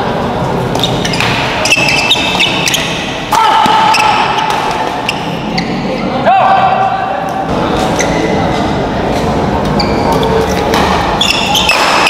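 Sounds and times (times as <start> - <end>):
crowd chatter: 0.0 - 12.0
rackets hitting shuttlecock: 0.7 - 5.4, 10.1 - 12.0
shoe squeaks: 0.8 - 3.2, 3.8 - 6.1, 7.8 - 8.6, 9.7 - 12.0.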